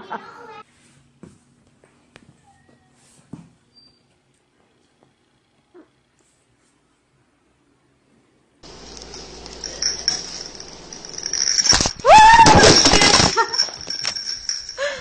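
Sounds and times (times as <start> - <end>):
faint high whine: 8.6 - 14.7.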